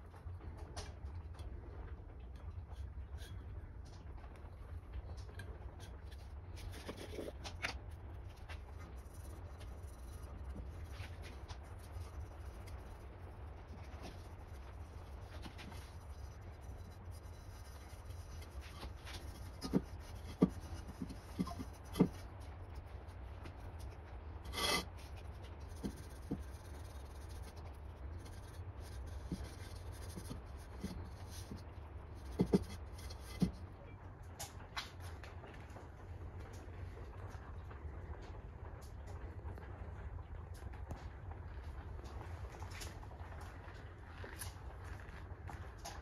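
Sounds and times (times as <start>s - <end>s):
hands rubbing a wok: 2.8s - 3.5s, 5.7s - 23.9s, 24.5s - 33.6s.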